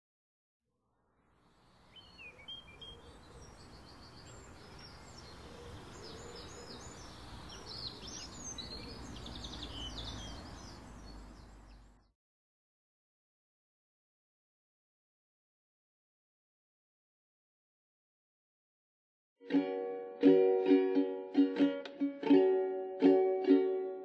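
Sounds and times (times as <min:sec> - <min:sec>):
outdoor background noise: 0:00.8 - 0:12.1
birds chirping and twittering: 0:01.5 - 0:12.1.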